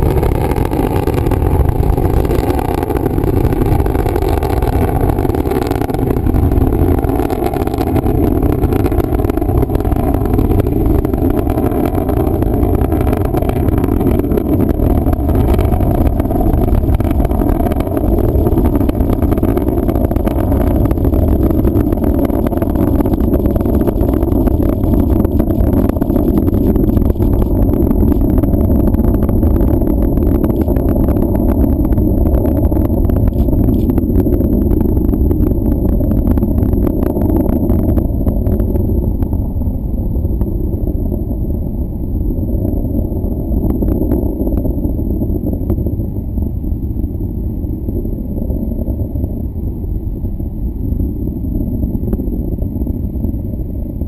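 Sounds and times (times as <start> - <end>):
rocket engine roar with crackle: 0.0 - 54.0.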